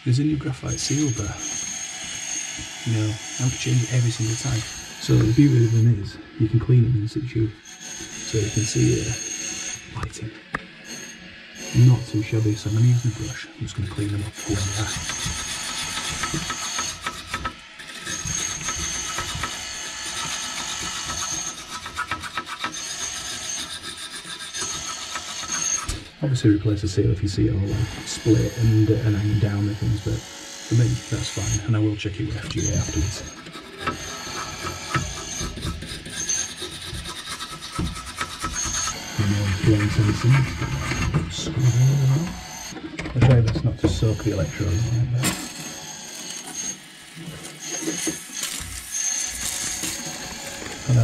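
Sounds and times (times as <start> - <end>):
thin high tone: 0.6 - 15.0, 38.8 - 42.7
brush scrubbing metal electrodes: 32.5 - 41.9.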